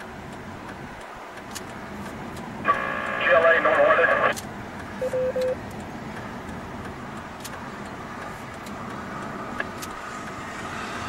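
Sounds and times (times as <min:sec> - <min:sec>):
radio voice transmission: 0:02.6 - 0:04.4
steady radio background noise: 0:02.6 - 0:05.6
short radio beeps: 0:02.7 - 0:04.3, 0:05.0 - 0:05.6.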